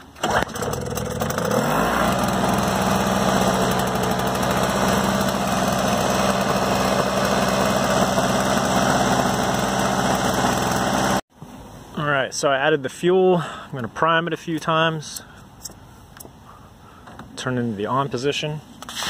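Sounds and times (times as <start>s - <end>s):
snowblower engine running: 0.2s - 11.2s.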